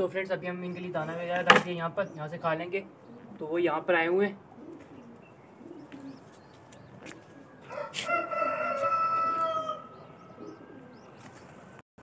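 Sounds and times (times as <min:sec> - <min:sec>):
rooster crowing: 0:07.6 - 0:10.3.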